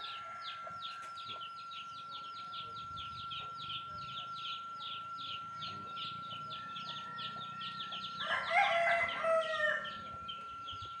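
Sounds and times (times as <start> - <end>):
rooster crowing: 0.0 - 1.0, 6.2 - 10.3
high chirping: 0.0 - 11.0.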